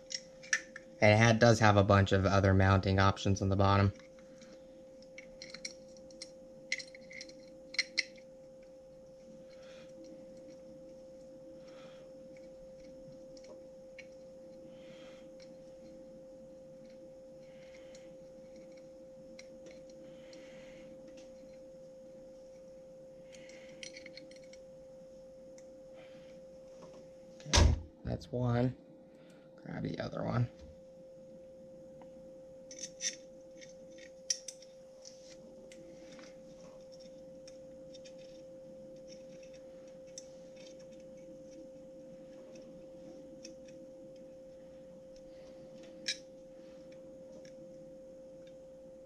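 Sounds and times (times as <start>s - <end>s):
faint steady hum: 0.0s - 49.0s
small metal clicks: 3.9s - 8.7s, 23.3s - 24.6s, 32.7s - 36.2s.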